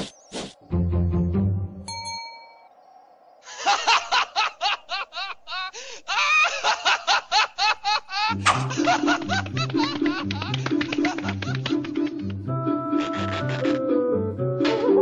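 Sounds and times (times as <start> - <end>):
high-pitched cartoon laughter: 12.8 - 13.8.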